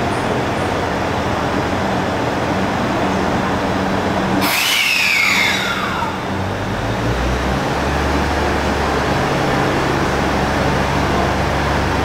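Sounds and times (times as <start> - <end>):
train engine humming: 0.0 - 12.0
loud hiss: 4.4 - 6.6
electric motor whine falling in pitch: 4.4 - 6.7.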